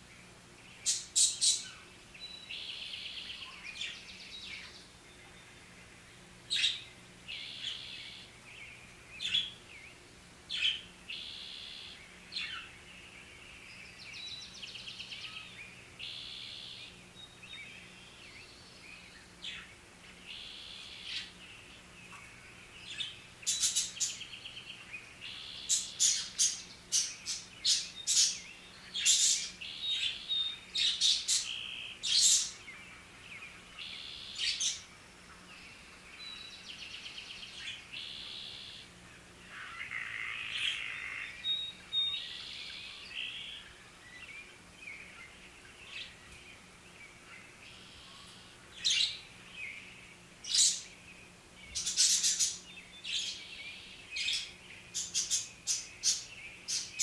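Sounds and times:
budgerigars chirping and chattering: 0.7 - 5.6, 6.5 - 12.9, 14.0 - 38.9, 39.5 - 51.1, 51.7 - 57.0.

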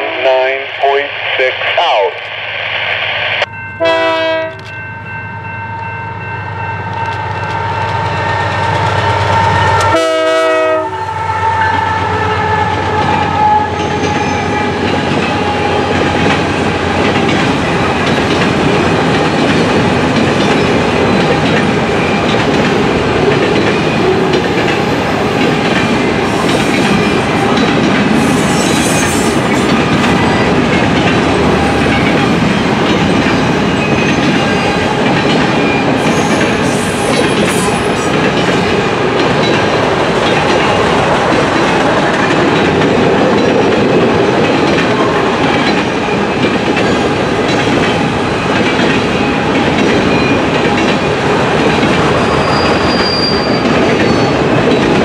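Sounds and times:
diesel locomotive working hard: 3.0 - 55.0
locomotive horn blasts: 3.8 - 4.7, 9.2 - 13.9
train wheels clickety-clack: 12.7 - 55.0.

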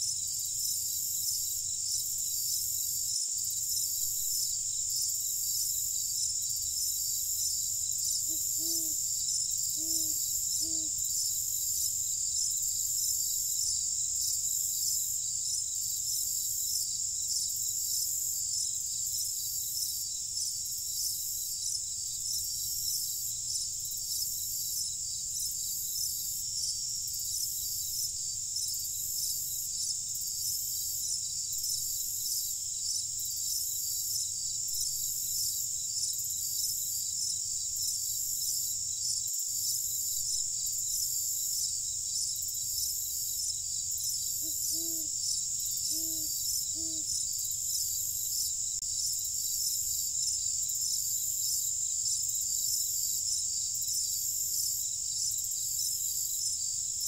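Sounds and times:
crickets chirping: 0.0 - 57.0.

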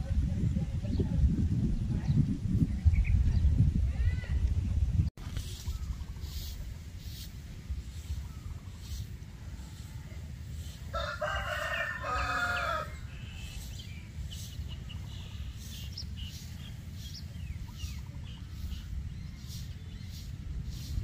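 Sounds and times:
small birds chirping: 0.5 - 21.0
rooster crowing: 10.9 - 13.2.

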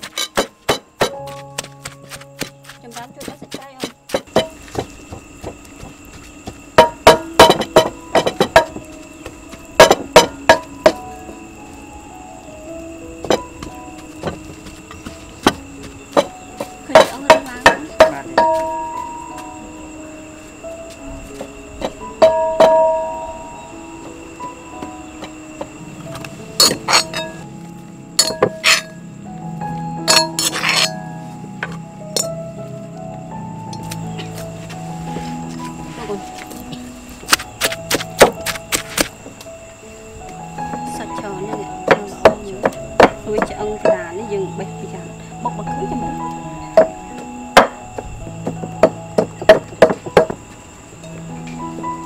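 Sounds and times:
clinks of bowls and utensils: 0.0 - 1.2, 26.1 - 27.4, 30.1 - 31.0
sharp ringing clinks and knocks: 0.0 - 1.7, 3.1 - 5.9, 6.8 - 9.0, 9.7 - 11.0, 21.8 - 23.5, 25.2 - 27.4, 28.2 - 29.0, 30.0 - 31.0
soft background music: 0.0 - 52.0.

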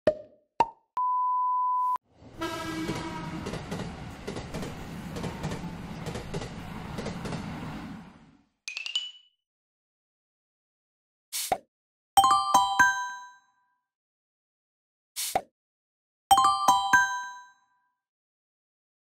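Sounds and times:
train rumble and rail clatter: 2.1 - 8.4
train horn tone: 2.2 - 4.0.

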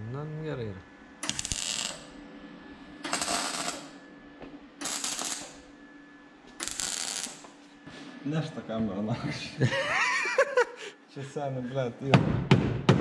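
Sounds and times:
welder arc crackling: 1.2 - 2.2, 3.0 - 4.0, 4.8 - 5.7, 6.6 - 7.6.

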